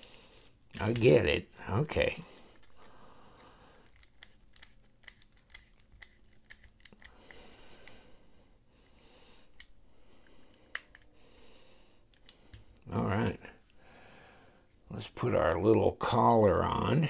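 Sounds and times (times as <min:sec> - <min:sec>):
screwdriver bit clicking: 0:03.8 - 0:07.2.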